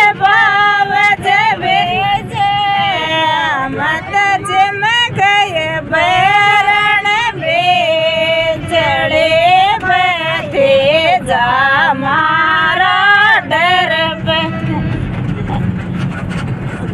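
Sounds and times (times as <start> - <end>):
women singing folk song: 0.0 - 14.8
low rumble: 5.1 - 16.9.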